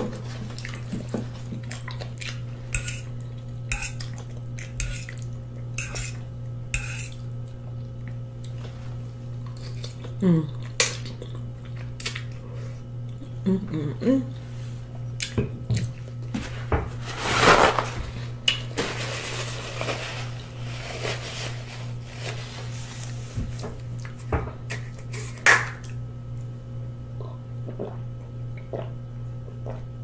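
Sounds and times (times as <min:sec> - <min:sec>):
steady low hum: 0:00.0 - 0:30.0
chewing and mouth noises: 0:00.4 - 0:05.8, 0:07.1 - 0:08.8, 0:09.4 - 0:12.4.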